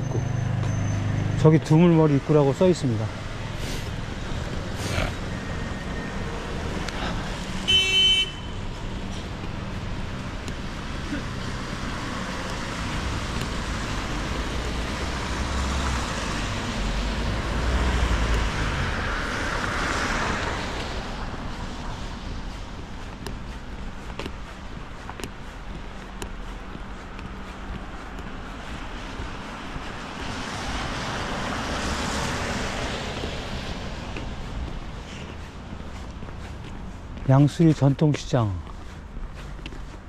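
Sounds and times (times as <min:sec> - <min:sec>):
road traffic: 0:00.0 - 0:40.0
short horn toot: 0:07.7 - 0:08.6
vehicle passing close: 0:09.8 - 0:21.8.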